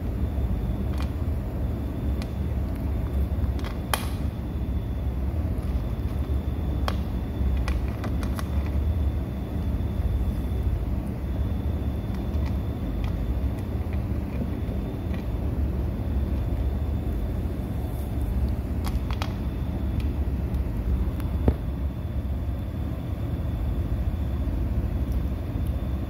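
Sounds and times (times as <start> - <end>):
kitten crunching dry kibble: 0.0 - 21.8
steady low rumble: 0.0 - 26.0.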